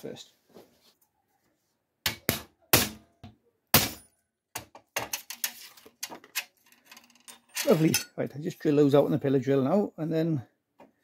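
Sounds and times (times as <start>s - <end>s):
hammer striking punch on steel: 2.1s - 3.0s
metal clinking when handled: 5.1s - 8.2s.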